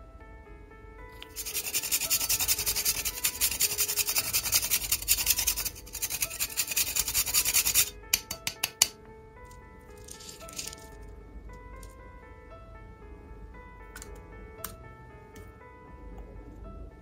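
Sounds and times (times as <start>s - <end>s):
nutmeg grating on a rasp: 1.2s - 8.0s.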